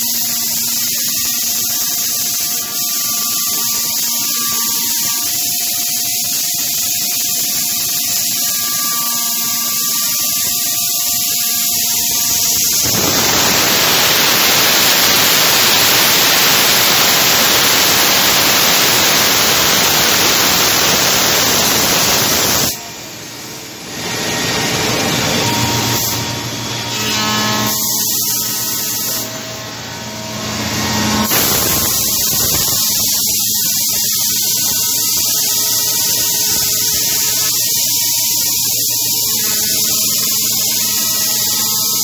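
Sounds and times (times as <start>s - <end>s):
cutter rushing through wood: 7.0s - 23.0s, 23.9s - 37.6s
router spindle running: 7.2s - 15.0s.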